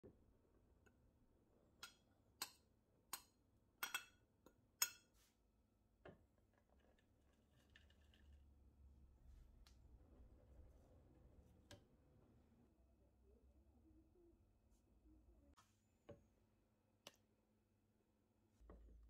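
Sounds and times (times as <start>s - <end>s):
spoon clinking in glass bowl: 1.8s - 4.2s, 4.8s - 5.1s.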